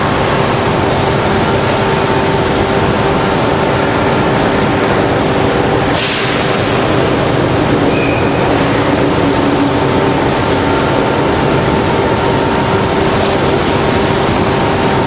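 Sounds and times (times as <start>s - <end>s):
loud industrial noise: 0.0s - 15.0s
steady hum: 0.0s - 15.0s
sharp hiss: 5.9s - 6.8s.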